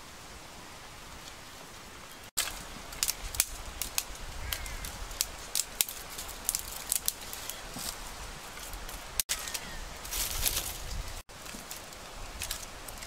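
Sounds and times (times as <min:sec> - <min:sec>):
brush rustling: 0:01.1 - 0:13.0
dry twigs snapping: 0:02.4 - 0:13.0.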